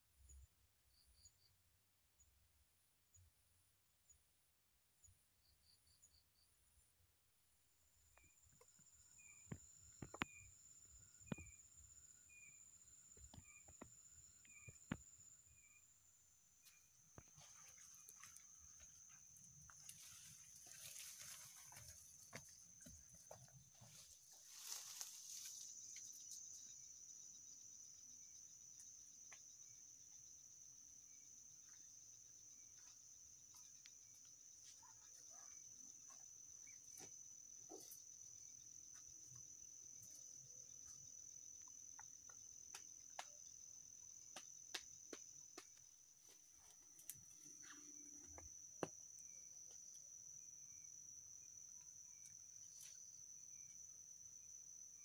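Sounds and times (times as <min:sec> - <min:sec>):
high-pitched insect song: 0:05.0 - 0:55.0
footsteps through dry undergrowth: 0:19.8 - 0:25.9.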